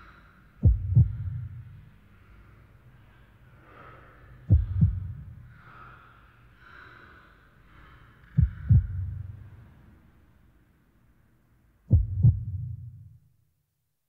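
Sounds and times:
heartbeat thumps: 0.6s - 1.6s, 4.5s - 5.4s, 8.3s - 9.4s, 11.9s - 13.2s.

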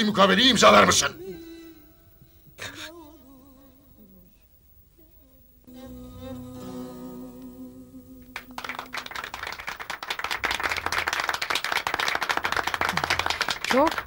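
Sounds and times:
audience applauding: 8.2s - 14.0s.

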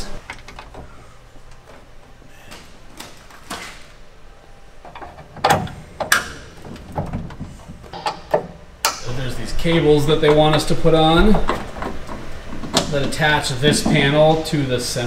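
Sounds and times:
metal clicks and knocks: 4.8s - 14.3s.

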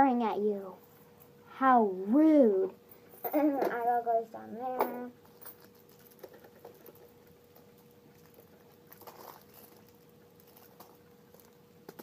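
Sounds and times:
faint steady hum: 0.0s - 12.0s
candy clicks and rattles: 5.5s - 12.0s.

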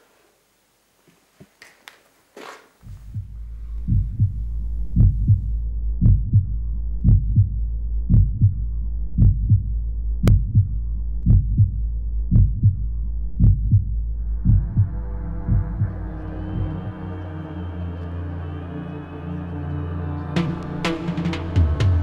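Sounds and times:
heartbeat thumps: 2.8s - 17.0s
steady low drone: 2.9s - 22.0s.

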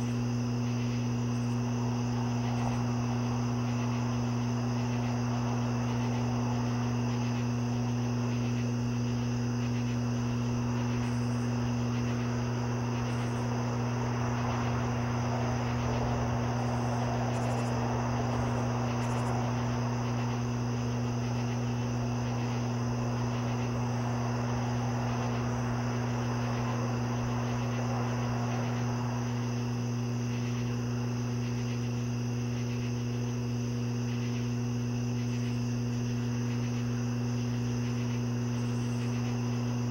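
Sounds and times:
crickets trilling: 0.0s - 39.9s
loud low hum: 0.0s - 39.9s.

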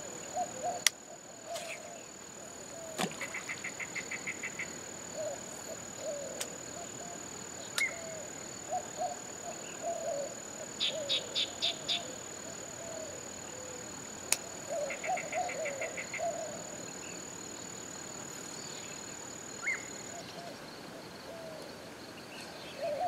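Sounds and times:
birds calling: 0.0s - 13.8s, 14.5s - 17.2s
insects high-pitched tone: 0.0s - 23.0s.

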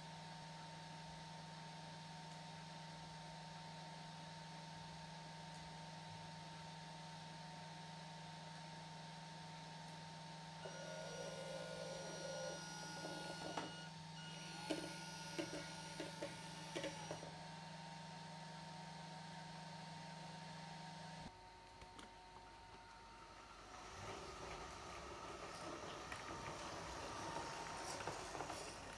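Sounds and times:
small electric motor whining: 10.6s - 17.3s
electrical hum: 10.6s - 17.8s.

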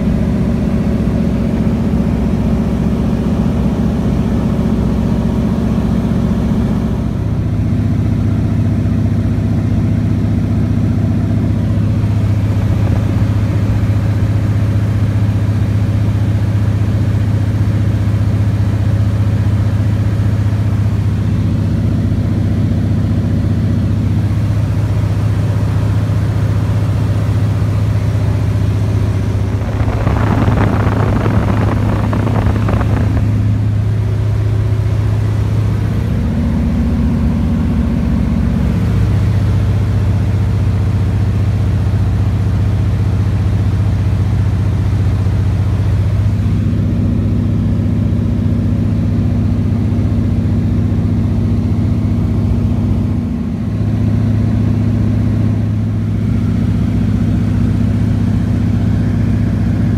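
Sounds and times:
propeller plane engine droning: 0.0s - 59.9s
air noise: 11.8s - 14.4s, 28.6s - 34.2s.

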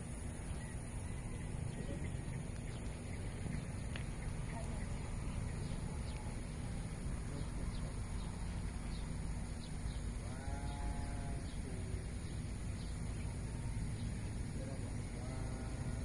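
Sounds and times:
low outdoor rumble: 0.0s - 16.0s
animal call: 10.1s - 12.0s.

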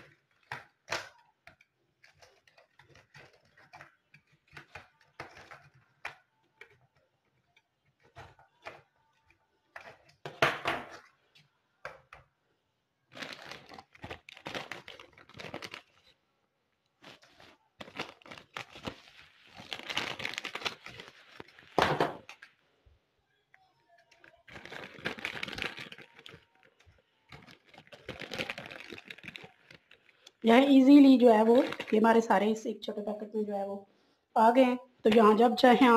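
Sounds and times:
plastic bag crinkling: 13.1s - 16.2s, 16.9s - 22.6s, 24.0s - 32.6s.

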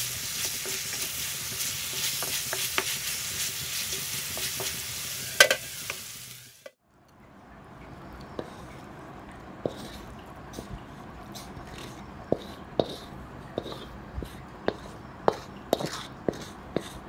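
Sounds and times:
metal spatula scraping a pan: 0.2s - 6.7s.

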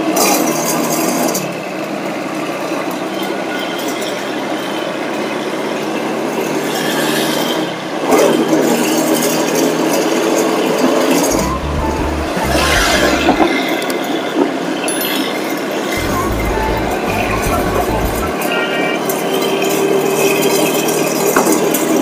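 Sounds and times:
vehicle engine running: 16.0s - 18.4s.

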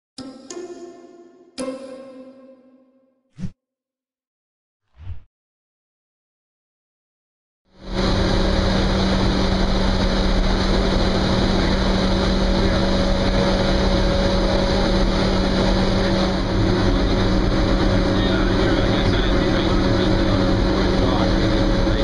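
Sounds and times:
boiler room machinery roar: 7.7s - 22.0s
high steady whine: 7.8s - 22.0s
low hum: 7.8s - 22.0s.

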